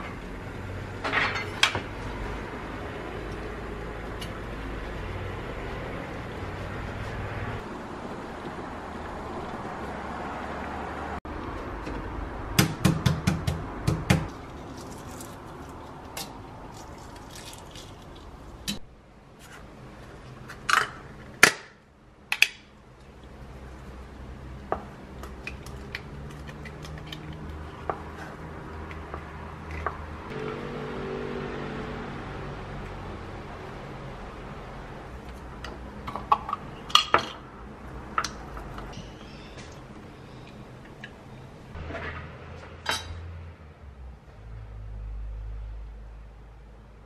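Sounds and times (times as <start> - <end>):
dishes and utensils clinking: 1.0 - 1.8, 41.8 - 43.2.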